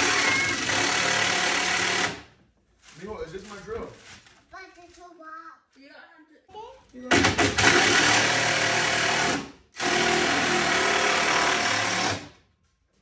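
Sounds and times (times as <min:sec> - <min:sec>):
cordless power driver running: 0:00.0 - 0:02.3, 0:07.1 - 0:12.2.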